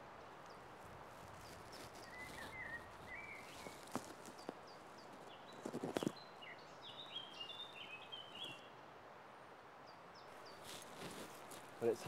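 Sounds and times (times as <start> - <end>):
small birds singing: 0.1 - 8.8, 9.8 - 12.0
knocks and scrapes from climbing: 5.2 - 6.2, 10.6 - 11.7.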